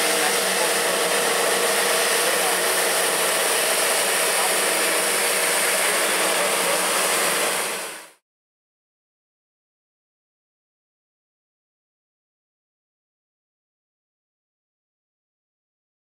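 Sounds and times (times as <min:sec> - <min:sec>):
tractor mechanical whir: 0:00.0 - 0:08.2.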